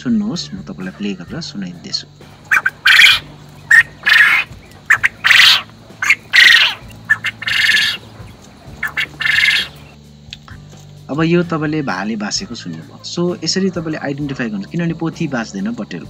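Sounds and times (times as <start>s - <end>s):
quail crowing: 2.3s - 10.0s.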